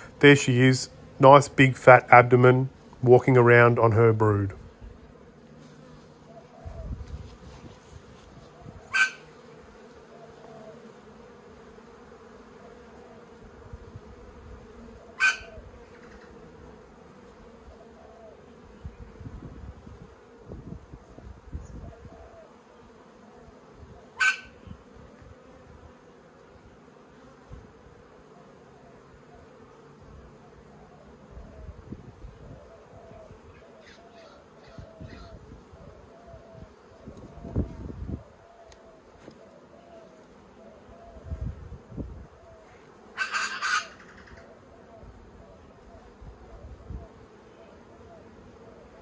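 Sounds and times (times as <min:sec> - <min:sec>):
honeybees humming: 0:00.0 - 0:49.0.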